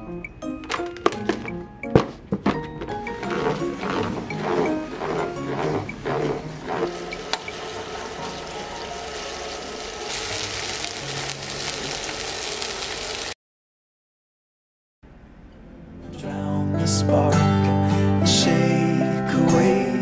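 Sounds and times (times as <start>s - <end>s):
salad spinner whirring: 3.0s - 13.3s
chicken sizzling in a frying pan: 7.2s - 13.4s.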